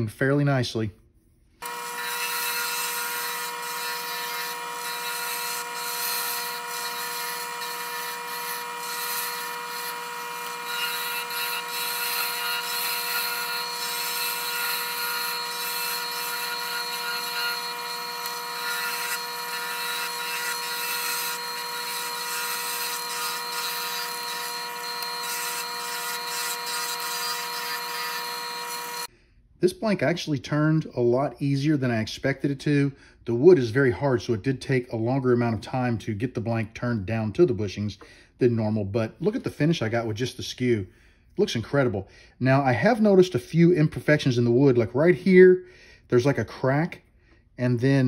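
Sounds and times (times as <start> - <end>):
chisel scraping spinning wood: 1.6 - 29.1
wood lathe humming: 1.6 - 29.1.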